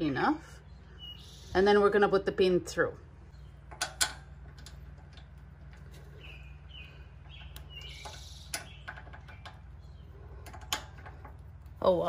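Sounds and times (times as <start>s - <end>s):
bird chirps: 0.5s - 1.8s, 3.3s - 3.7s, 5.8s - 10.4s
small metallic clicks and taps: 3.6s - 6.1s, 10.4s - 11.8s.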